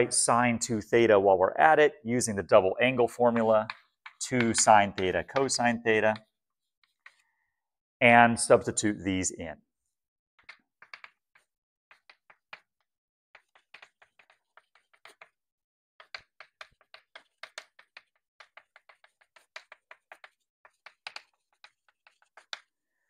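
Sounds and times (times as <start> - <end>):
chalk tapping and scratching: 3.2 - 7.3, 10.4 - 22.8.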